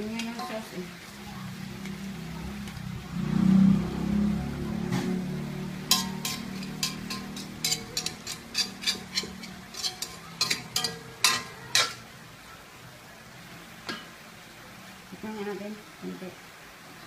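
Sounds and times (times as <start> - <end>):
metal utensil scraping a pan: 0.0 - 0.8, 5.0 - 12.1.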